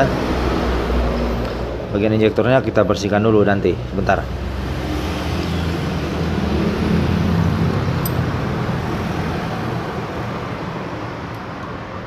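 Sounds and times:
vehicle engine humming: 0:00.0 - 0:12.0
small metallic click: 0:08.0 - 0:08.2.

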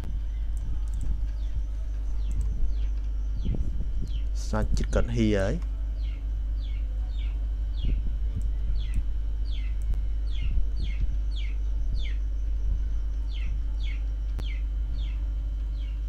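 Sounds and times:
steady low hum: 0:00.0 - 0:16.0
bird chirping: 0:06.0 - 0:08.0, 0:08.8 - 0:12.5, 0:13.1 - 0:16.0.

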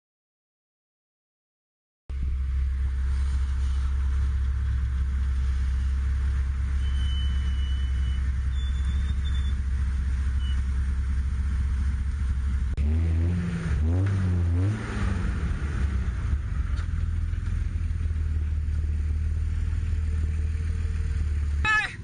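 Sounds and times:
engine idling: 0:02.1 - 0:12.8, 0:15.2 - 0:22.0
engine revving: 0:02.1 - 0:21.7.

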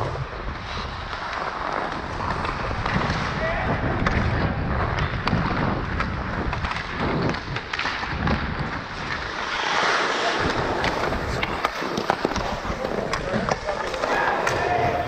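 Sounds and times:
skate blades scraping ice: 0:00.0 - 0:15.0
wind rushing over microphone: 0:00.0 - 0:15.0
hockey sticks and puck clicking: 0:00.1 - 0:15.0.

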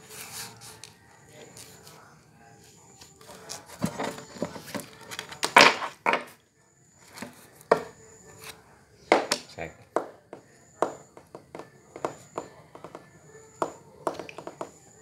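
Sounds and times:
playing cards slapped on wooden table: 0:05.4 - 0:06.3.

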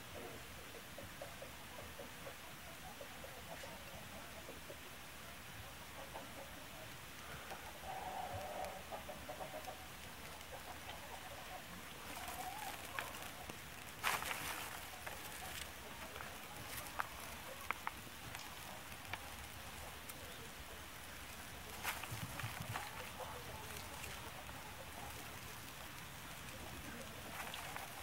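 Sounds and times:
small fire crackling: 0:00.0 - 0:28.0
dry shavings rustling: 0:12.0 - 0:28.0.

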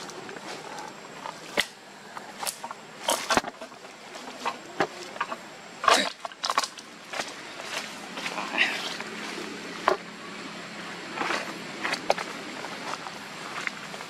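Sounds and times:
trap cracking and crunching underfoot: 0:00.0 - 0:09.1.

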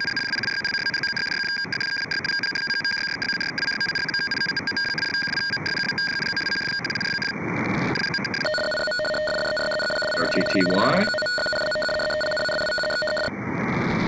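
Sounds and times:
whistling data tones: 0:00.0 - 0:07.3, 0:08.0 - 0:13.3
radio static hiss: 0:00.8 - 0:08.6, 0:10.0 - 0:11.3.

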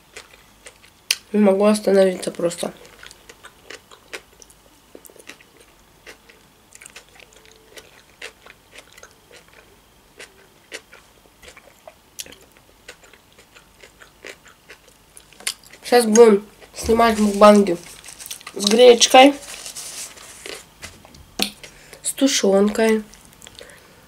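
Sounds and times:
person chewing: 0:00.0 - 0:01.2, 0:02.8 - 0:18.8, 0:20.0 - 0:20.8, 0:23.1 - 0:23.8.

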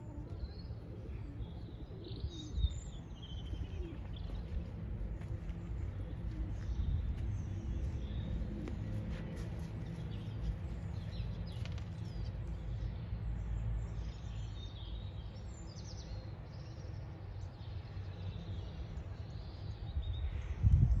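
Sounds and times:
small birds chirping: 0:00.0 - 0:21.0
wind rumble on microphone: 0:02.2 - 0:12.2, 0:19.6 - 0:21.0.

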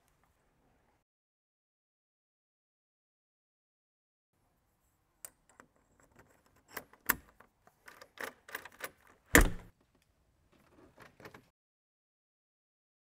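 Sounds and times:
door knob lockset clicking and rattling: 0:05.6 - 0:09.7.

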